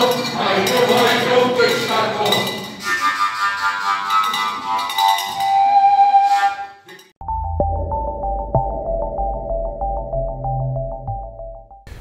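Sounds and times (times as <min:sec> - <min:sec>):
voices: 0:00.0 - 0:02.6
overtone flute playing: 0:02.8 - 0:07.0.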